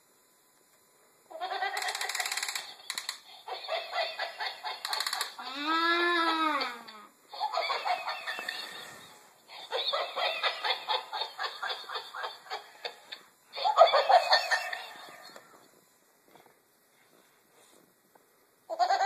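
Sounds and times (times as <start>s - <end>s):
rapid pulsing chuckles: 1.3s - 5.5s, 6.5s - 15.4s.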